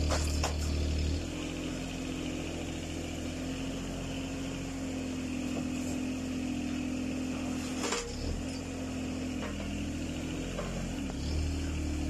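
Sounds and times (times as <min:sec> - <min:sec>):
excavator bucket clanking: 0:00.0 - 0:00.8
excavator engine running: 0:00.0 - 0:12.0.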